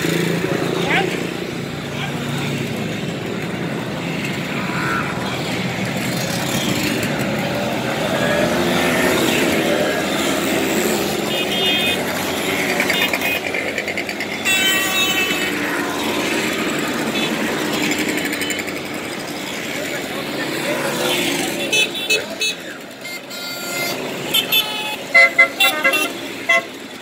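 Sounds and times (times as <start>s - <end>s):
short horn beeps: 21.8s - 26.7s.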